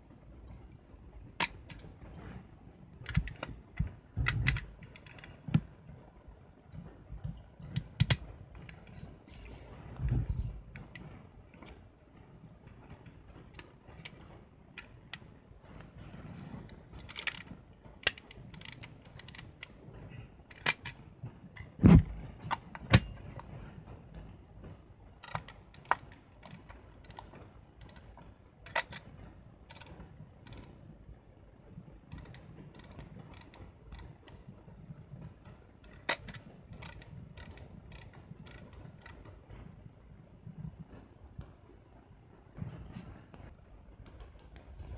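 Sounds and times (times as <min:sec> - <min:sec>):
soft handling noise on camera: 0:07.2 - 0:11.9, 0:42.6 - 0:44.9
small camera clicks and ticks: 0:17.0 - 0:19.7, 0:25.2 - 0:29.1, 0:29.7 - 0:30.8, 0:32.1 - 0:34.4, 0:35.8 - 0:39.4
camera back thump: 0:21.8 - 0:22.2.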